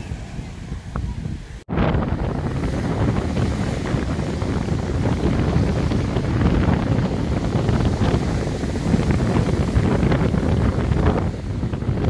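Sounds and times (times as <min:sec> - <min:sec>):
surf breaking on beach: 0:00.0 - 0:12.0
wind buffeting microphone: 0:00.0 - 0:12.0.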